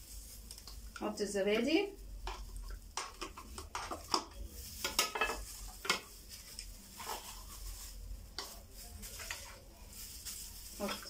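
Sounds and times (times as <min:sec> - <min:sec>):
spoon scraping and tapping: 0:01.6 - 0:06.1.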